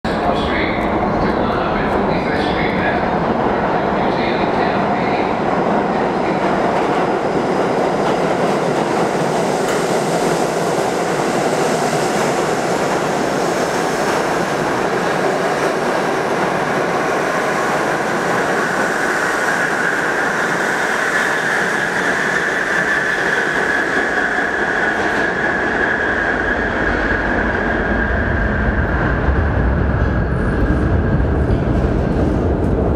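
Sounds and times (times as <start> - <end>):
train wheels rushing on rail: 0.1 - 32.9
deep train rumble: 21.6 - 32.9.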